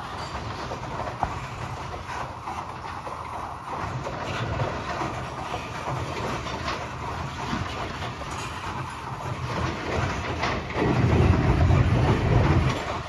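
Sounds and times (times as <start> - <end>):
rumble of train wheels on rail: 0.0 - 13.0
clicks and clanks: 3.8 - 13.0.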